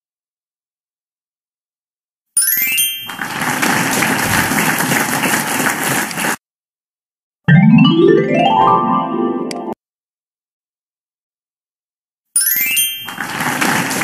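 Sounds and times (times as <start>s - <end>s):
applause-like noisy burst: 3.1s - 6.4s, 13.1s - 14.0s.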